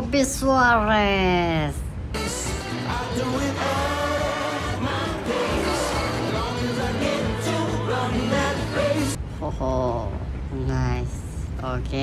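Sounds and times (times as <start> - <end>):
pop music with singing: 2.2 - 9.2.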